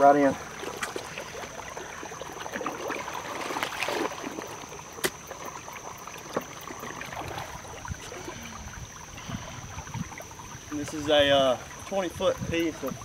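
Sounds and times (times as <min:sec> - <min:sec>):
water flowing through trench: 0:00.0 - 0:13.0
hands sloshing in mud: 0:00.5 - 0:05.2.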